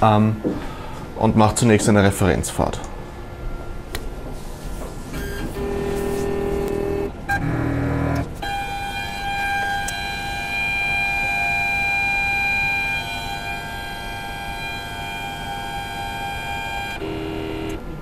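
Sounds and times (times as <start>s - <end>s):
stepper motors whining: 5.1s - 18.0s.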